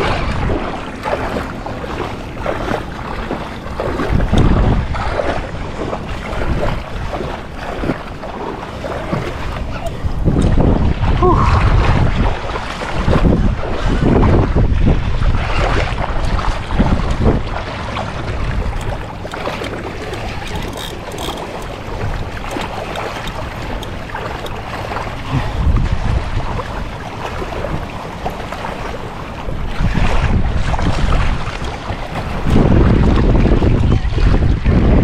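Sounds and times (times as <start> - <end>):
small waves lapping: 0.0 - 35.0
wind buffeting microphone: 0.0 - 35.0.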